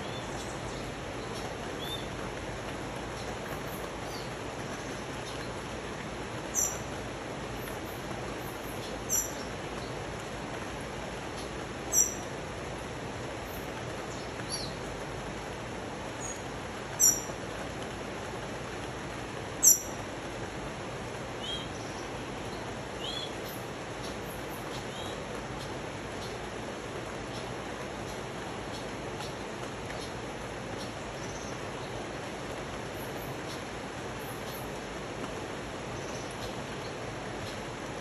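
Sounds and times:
rain: 0.0s - 38.0s
bird chirping: 6.5s - 6.9s, 8.7s - 9.5s, 11.4s - 12.2s, 17.0s - 17.3s, 19.6s - 19.9s.

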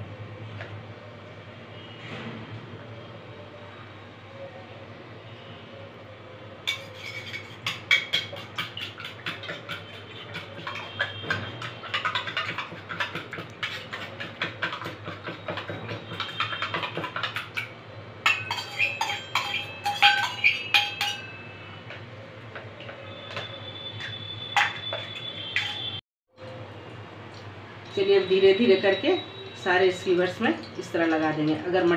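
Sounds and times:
metal spoon beating eggs in bowl: 6.7s - 21.3s.

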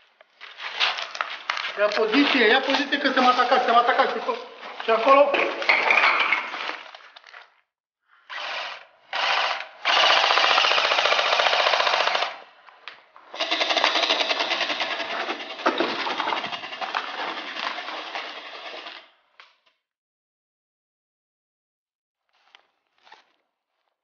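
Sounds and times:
airsoft rifle automatic fire: 9.9s - 12.4s, 13.4s - 15.2s.

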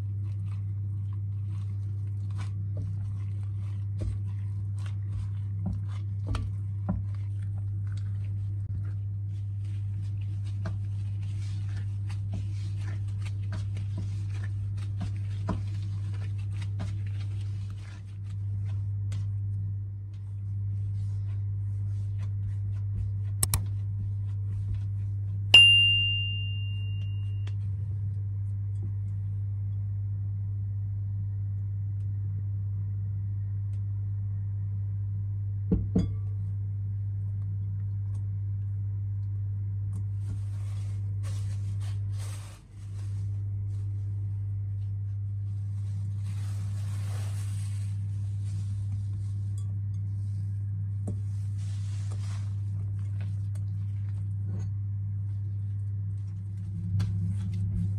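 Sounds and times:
steady low hum: 0.0s - 57.9s
bright bell ding: 25.6s - 27.4s.

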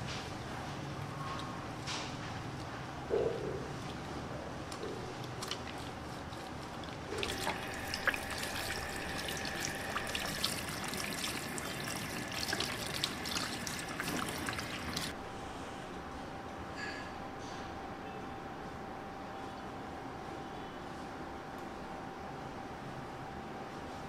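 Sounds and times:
water running and spattering: 5.4s - 15.2s.

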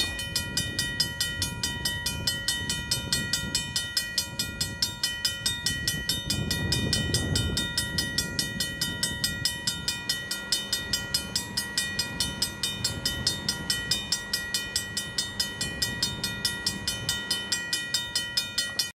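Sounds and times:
railroad crossing bell ringing: 0.0s - 19.0s.

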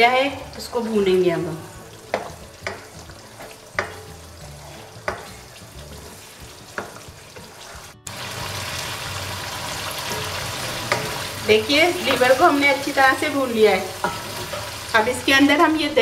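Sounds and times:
food sizzling: 0.0s - 16.0s
spatula scraping a wok: 2.0s - 11.4s, 13.9s - 14.9s.

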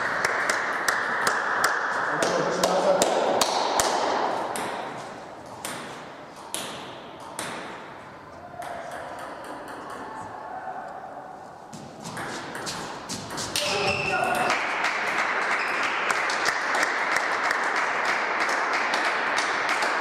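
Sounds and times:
table tennis balls clicking: 8.6s - 10.2s.

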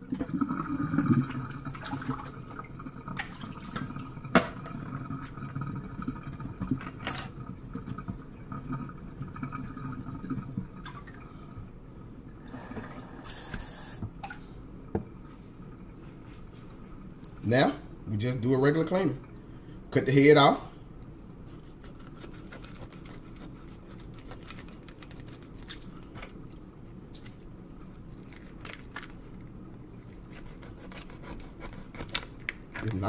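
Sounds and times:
water gurgling down a sink drain: 0.0s - 11.4s, 12.2s - 13.5s.

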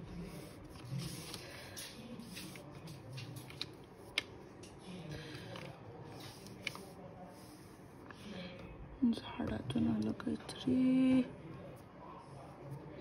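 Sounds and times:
paper rustling: 0.1s - 4.2s, 5.2s - 7.0s.

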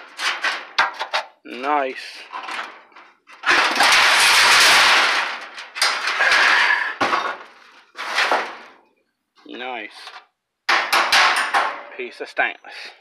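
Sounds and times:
steel sheets scraping: 0.0s - 1.3s, 2.0s - 8.8s.

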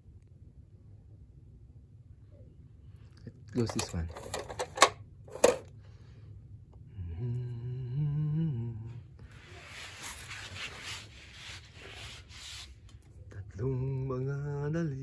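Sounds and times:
plastic toy clicks and knocks: 3.6s - 5.7s
person humming: 7.0s - 9.1s
soft rustling hiss: 9.2s - 13.4s.

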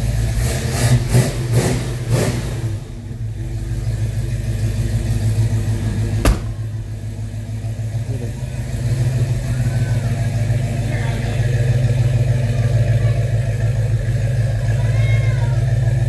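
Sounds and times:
car engine idling and revving: 0.0s - 16.0s
car door shutting: 6.2s - 6.8s.

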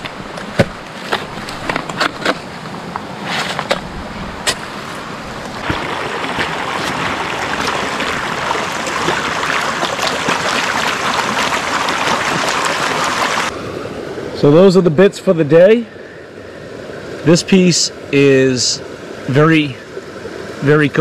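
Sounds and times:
shallow brook rushing: 0.0s - 15.7s
shovel scraping gravel: 3.2s - 4.7s.

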